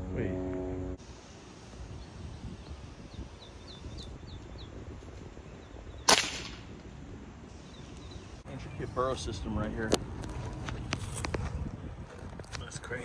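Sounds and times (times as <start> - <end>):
air rifle firing crack: 6.0 - 6.8.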